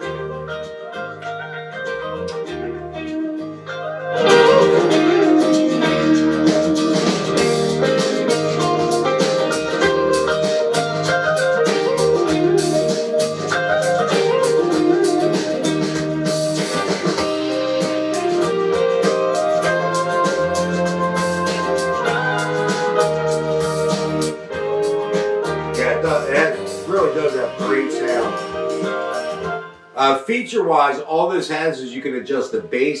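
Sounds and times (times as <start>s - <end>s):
guitar-led soft rock over speaker: 0.0s - 33.0s.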